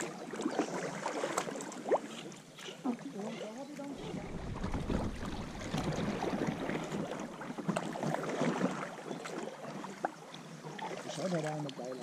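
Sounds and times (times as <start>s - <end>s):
kayak paddle splashing: 0.0s - 12.0s.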